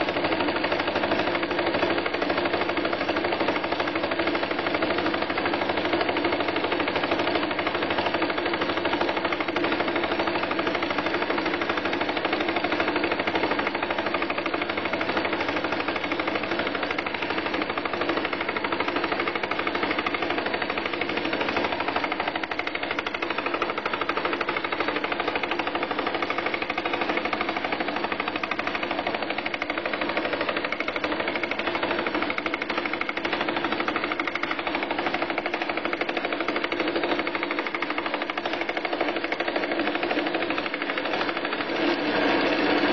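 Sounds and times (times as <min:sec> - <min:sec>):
lathe running: 0:00.0 - 0:42.9.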